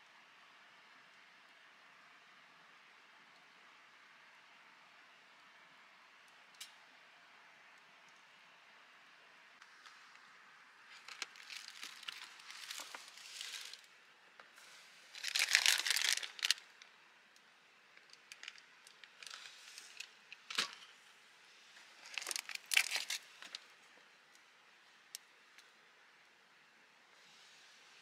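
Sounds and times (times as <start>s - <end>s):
rustling and crinkling: 10.9s - 13.9s, 14.6s - 16.8s, 18.0s - 20.9s, 21.7s - 24.0s.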